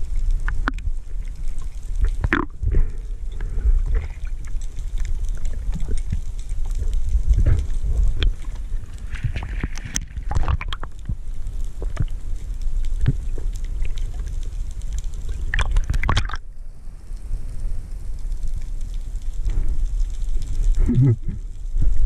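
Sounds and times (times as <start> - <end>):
underwater water rumble: 0.0 - 22.0.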